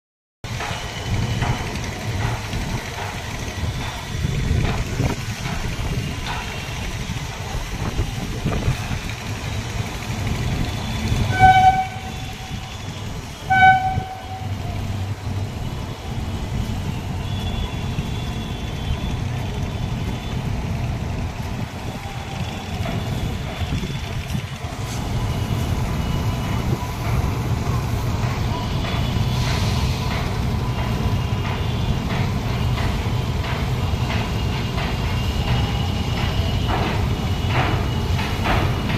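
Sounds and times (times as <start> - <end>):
train rumbling across steel bridge: 0.4 - 38.9
train horn blasts: 10.9 - 15.1.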